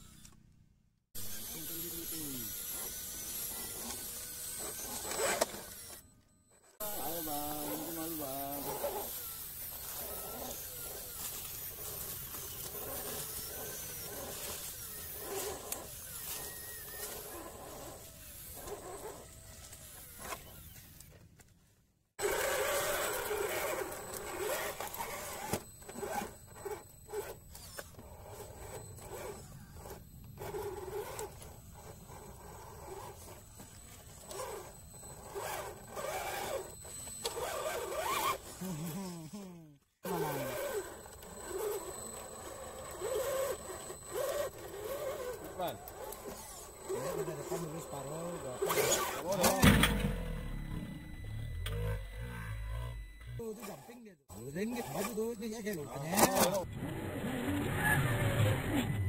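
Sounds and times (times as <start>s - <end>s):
electric motor whining: 0.0s - 0.5s, 1.2s - 21.2s, 22.2s - 59.0s.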